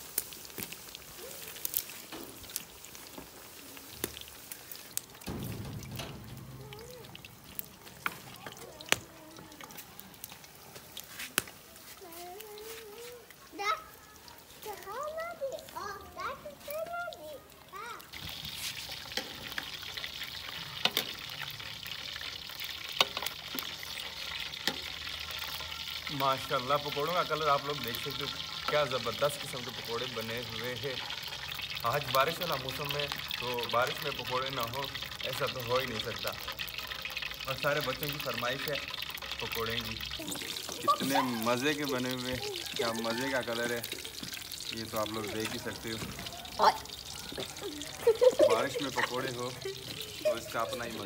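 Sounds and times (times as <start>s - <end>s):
deep-frying sizzle with pops: 0.0s - 51.0s
metal utensils knocking on pot: 5.2s - 9.0s
low rumble: 5.4s - 8.1s.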